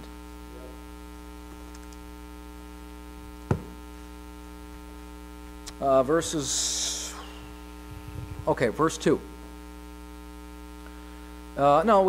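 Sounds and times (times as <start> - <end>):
electrical mains hum: 0.0 - 12.0
sharp thump: 3.5 - 3.8.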